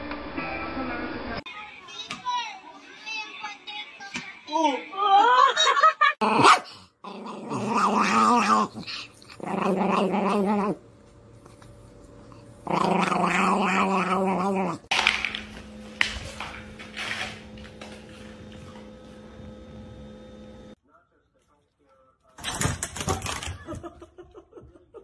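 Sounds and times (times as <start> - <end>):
small dog growling: 6.2 - 10.8, 12.3 - 14.9.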